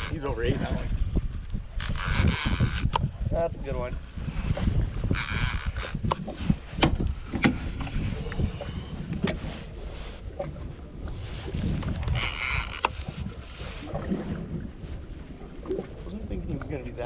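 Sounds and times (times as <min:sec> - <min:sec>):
fishing reel clicks: 0:00.0 - 0:00.3, 0:01.8 - 0:03.1, 0:05.1 - 0:06.2, 0:12.2 - 0:13.0
boat rumble: 0:00.0 - 0:17.0
low wind: 0:00.0 - 0:17.0.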